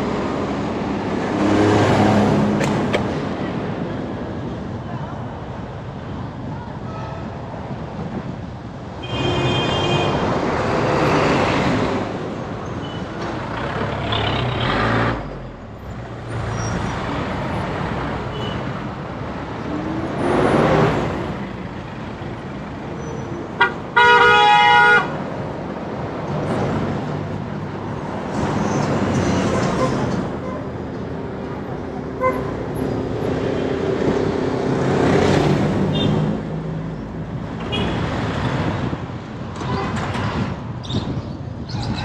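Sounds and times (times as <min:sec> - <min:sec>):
road traffic passing: 0:00.0 - 0:42.0
loud horn blast: 0:23.6 - 0:25.2.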